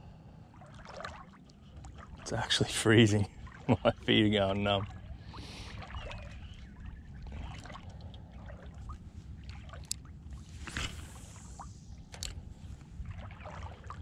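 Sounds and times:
water sloshing around legs: 0:00.5 - 0:14.0
wind rumble on microphone: 0:04.8 - 0:14.0
fishing reel clicks: 0:12.1 - 0:12.4.

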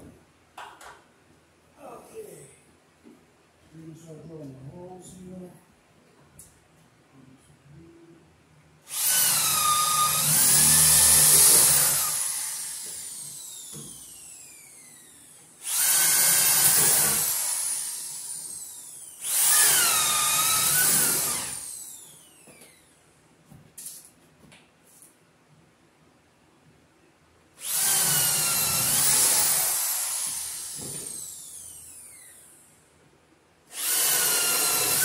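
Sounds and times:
electric drill boring wood: 0:08.9 - 0:22.8, 0:27.6 - 0:32.7, 0:33.7 - 0:35.0.

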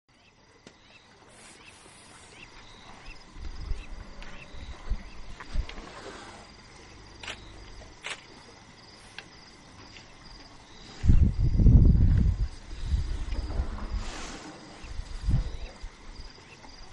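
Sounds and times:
night insects chirping: 0:00.1 - 0:16.9
sharp clicks: 0:07.2 - 0:08.3
low muffled rumbles and thumps: 0:11.0 - 0:14.1.

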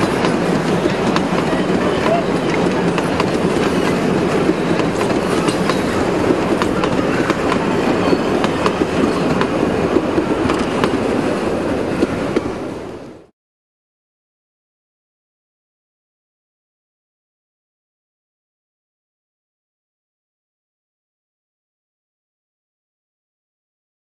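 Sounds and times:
train wheels clicking over rail joints: 0:00.0 - 0:12.6
train carriages rumbling by: 0:00.0 - 0:13.3.

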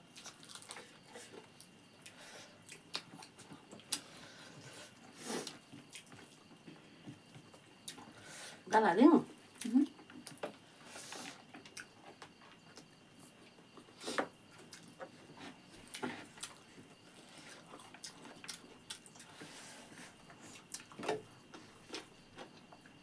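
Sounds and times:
soft chewing and lip smacks: 0:14.6 - 0:15.2, 0:15.8 - 0:19.5.

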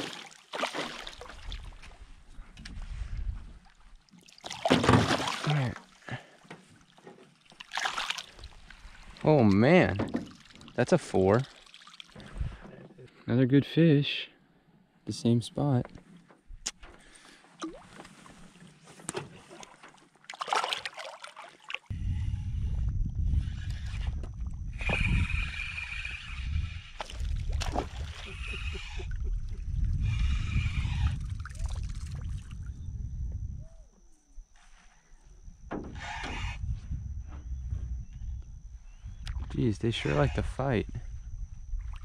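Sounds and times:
fish thrashing and splashing: 0:00.0 - 0:01.8, 0:04.2 - 0:06.0, 0:07.3 - 0:09.0, 0:11.5 - 0:12.2, 0:19.4 - 0:21.9
water sloshing against hull: 0:00.0 - 0:13.0, 0:15.9 - 0:21.9
steady low rumble: 0:21.9 - 0:42.0.

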